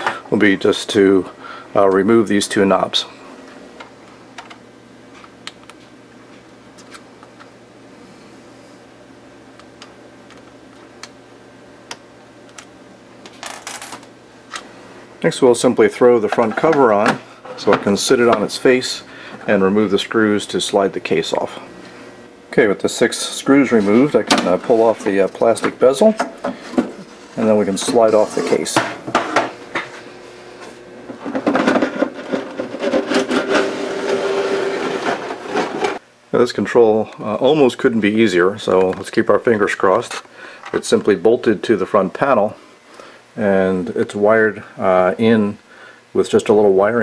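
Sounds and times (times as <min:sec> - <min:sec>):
low steady hum: 0:00.0 - 0:47.0
metal case rubbing scrape: 0:27.0 - 0:29.4, 0:31.1 - 0:36.0.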